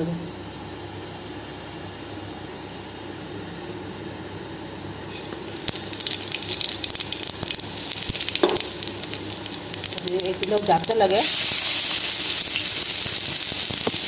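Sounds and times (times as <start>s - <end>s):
seeds sizzling in hot oil: 5.1s - 14.0s.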